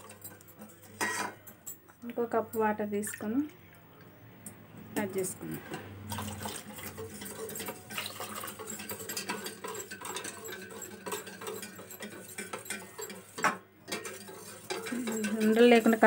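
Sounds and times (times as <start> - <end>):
whisk scraping glass bowl: 0.0 - 1.5, 5.1 - 16.0.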